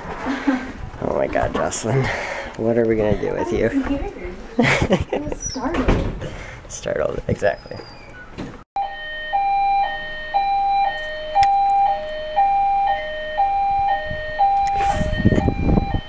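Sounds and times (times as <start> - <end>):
fire alarm hi-lo tone: 8.8 - 16.0.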